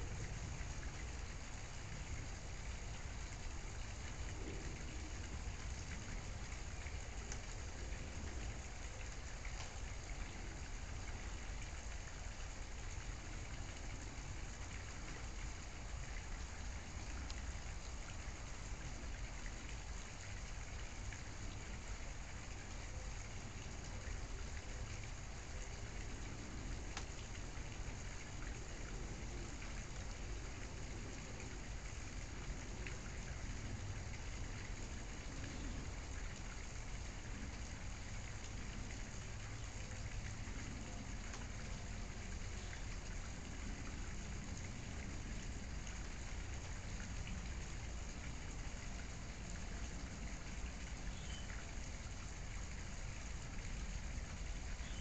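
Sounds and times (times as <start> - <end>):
steady background hiss: 0.0 - 55.0
faint ticks: 26.1 - 27.4.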